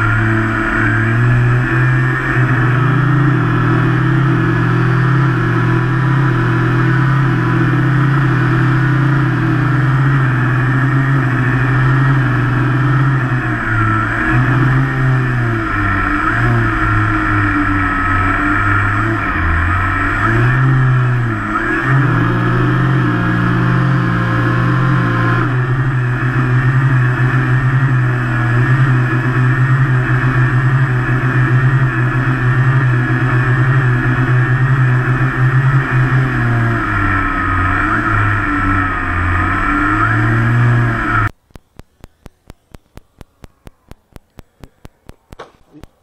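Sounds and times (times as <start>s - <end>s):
faint regular clicking: 41.3s - 46.0s.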